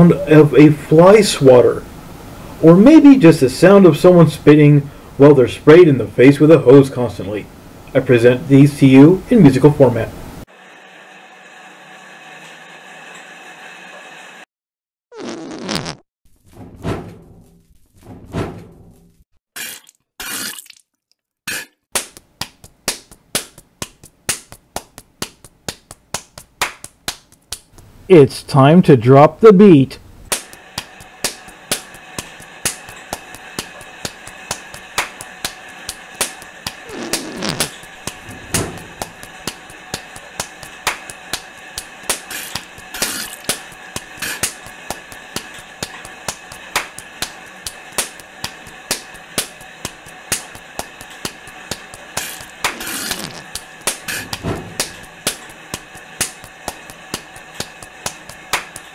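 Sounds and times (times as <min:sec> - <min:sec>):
sharp smacks keeping time: 0:22.0 - 0:27.8, 0:30.3 - 0:58.9
short bursts of hiss: 0:30.3 - 0:47.4, 0:48.1 - 0:58.9.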